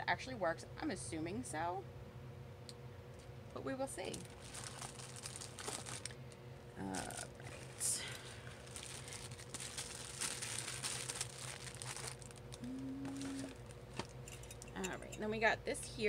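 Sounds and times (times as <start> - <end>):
plastic crinkling and rustling: 4.1 - 14.2
person humming: 12.6 - 13.6.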